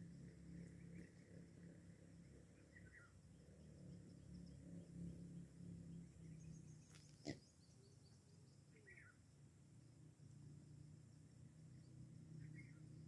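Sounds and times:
faint bird chirps: 0.2 - 3.2, 6.1 - 9.2, 11.2 - 13.0.

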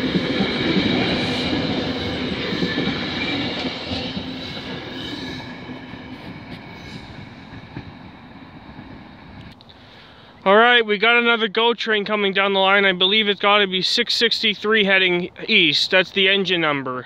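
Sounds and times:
train wheels on rails: 0.0 - 9.8.

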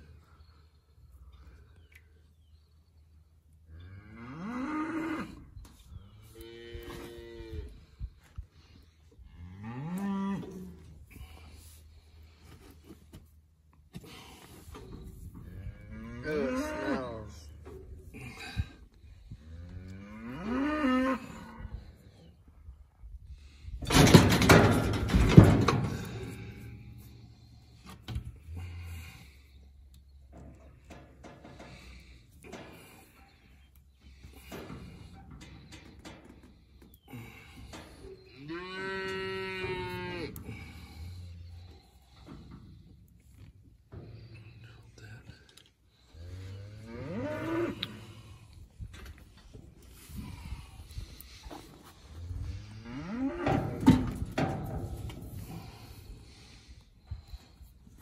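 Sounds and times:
calf mooing: 15.6 - 17.4
metal livestock chute rattling: 23.8 - 27.0, 53.1 - 55.9.

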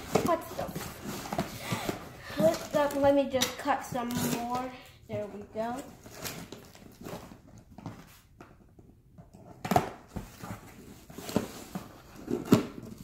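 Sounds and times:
packaging rustling: 0.0 - 3.3, 5.6 - 8.6.

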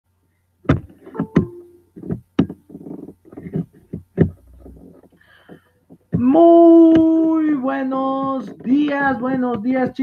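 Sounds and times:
muffled rustling: 0.7 - 7.2.

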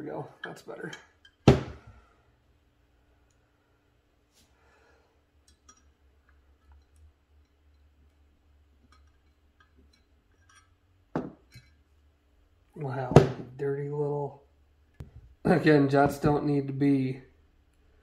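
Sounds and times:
thump: 1.5 - 1.9.

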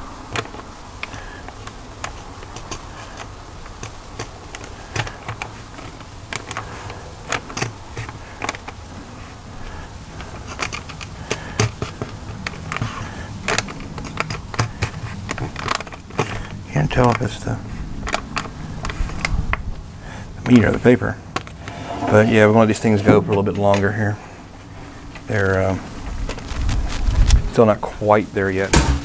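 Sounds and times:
steady low buzz: 21.5 - 24.6
paper crinkling: 26.0 - 27.5.

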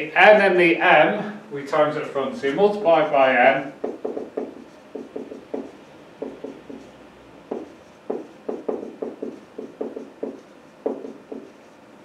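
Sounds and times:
marker writing on whiteboard: 3.8 - 11.8.

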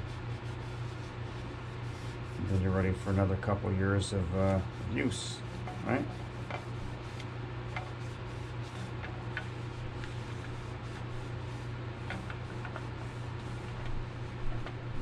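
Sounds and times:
steady low hum: 0.0 - 15.0
cloth rubbing plastic tank: 4.5 - 15.0.

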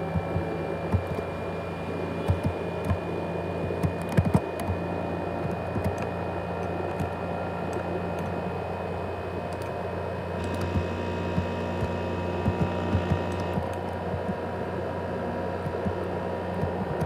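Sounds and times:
laptop cooling fan humming: 0.0 - 17.0.

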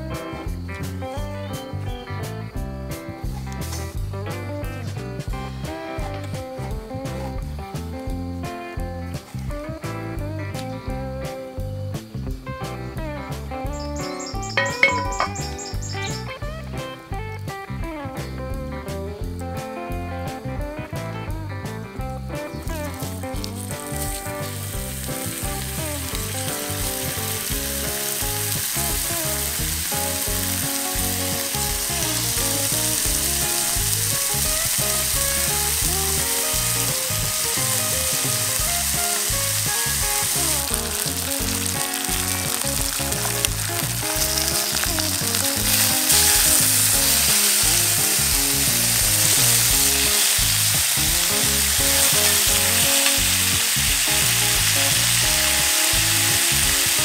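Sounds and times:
bacon sizzling in a skillet: 0.0 - 18.3, 22.0 - 57.0.

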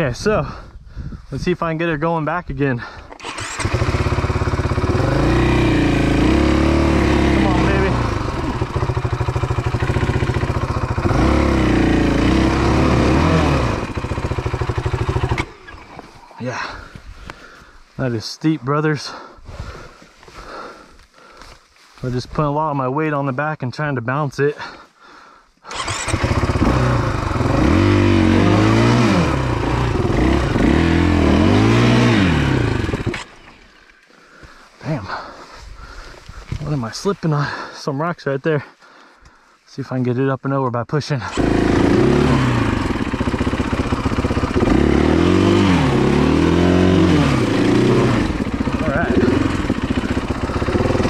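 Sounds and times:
dirt bike engine revving: 3.1 - 16.0, 25.7 - 33.8, 41.2 - 51.0.

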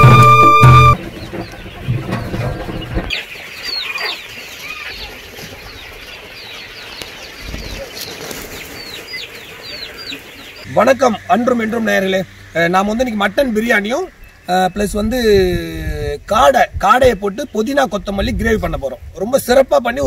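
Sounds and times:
music: 0.0 - 1.0, 10.7 - 13.1
young quail peeping: 0.0 - 18.9.

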